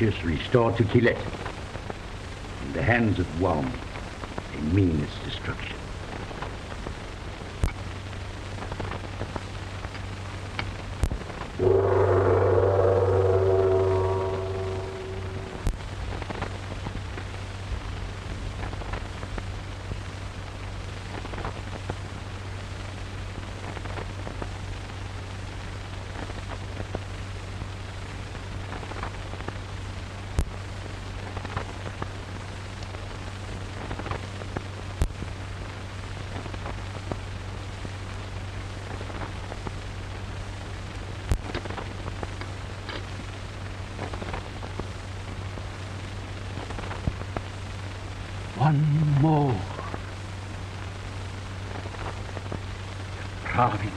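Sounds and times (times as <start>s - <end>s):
film soundtrack hum: 0.0s - 23.2s, 28.8s - 53.9s
hiss and crackle: 0.0s - 53.9s
gong ringing: 11.6s - 15.8s.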